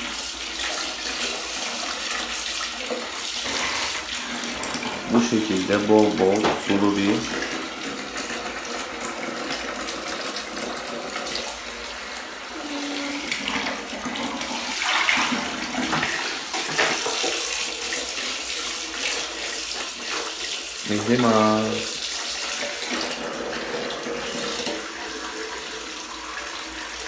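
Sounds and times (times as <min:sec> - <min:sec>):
water pouring into plastic bucket: 0:00.0 - 0:27.0
water splashes: 0:11.3 - 0:23.6.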